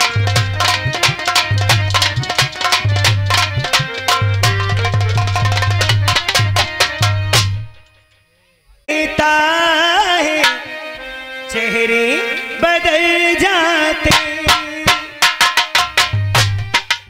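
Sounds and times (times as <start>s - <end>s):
hand drum strokes: 0.0s - 7.9s, 14.1s - 17.0s.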